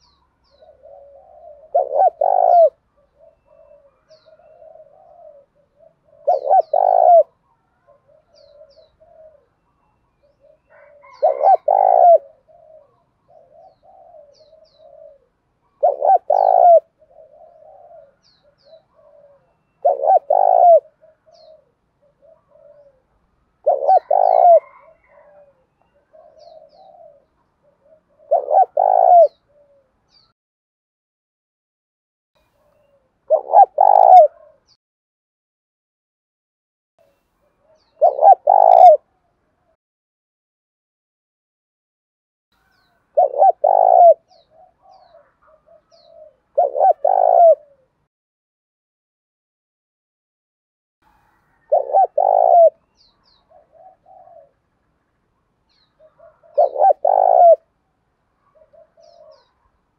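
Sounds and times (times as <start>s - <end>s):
dove cooing: 0.0s - 30.3s, 32.5s - 34.8s, 37.6s - 39.7s, 42.7s - 48.1s, 51.1s - 54.6s, 55.8s - 57.8s, 58.4s - 59.8s.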